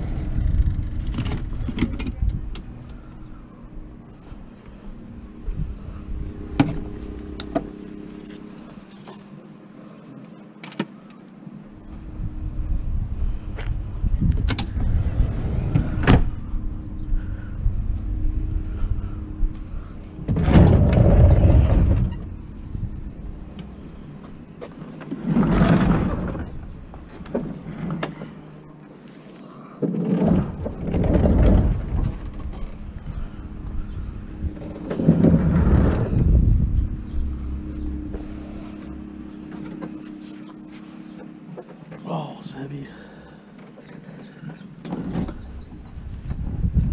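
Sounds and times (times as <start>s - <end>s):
steady low hum: 0.0s - 46.9s
fridge scraping and bumping: 20.2s - 22.3s.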